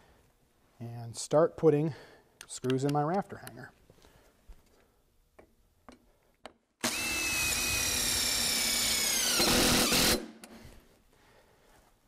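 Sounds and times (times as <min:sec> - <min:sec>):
cordless drill driving screw: 0:06.8 - 0:10.3.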